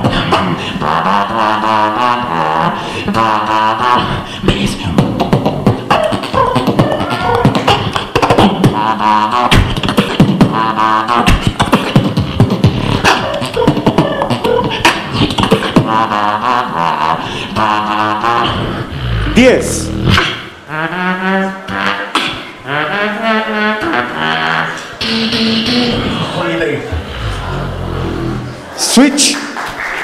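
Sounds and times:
beatboxing into a microphone: 0.0s - 28.4s
hummed bass and melody phrases: 15.6s - 26.2s.

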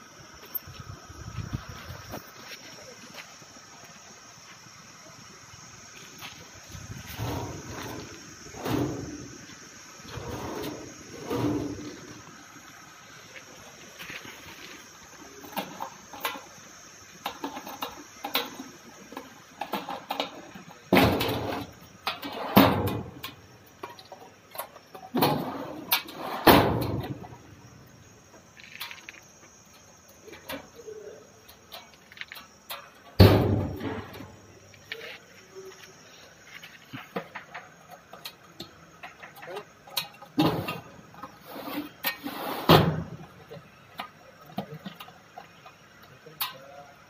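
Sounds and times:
metal cabinet door banging shut: 20.9s - 21.6s, 22.2s - 23.2s, 26.2s - 27.2s, 33.2s - 34.3s, 42.6s - 43.2s.

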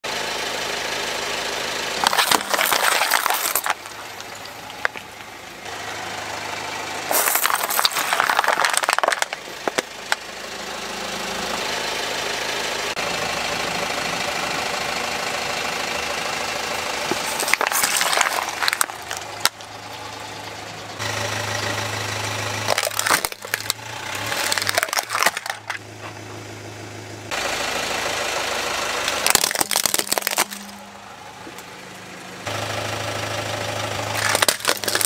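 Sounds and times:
car engine running: 0.1s - 35.0s
plastic bottles crushing and splattering: 2.0s - 5.4s, 7.1s - 9.9s, 17.1s - 19.6s, 22.6s - 25.8s, 29.1s - 30.8s, 34.2s - 35.0s.

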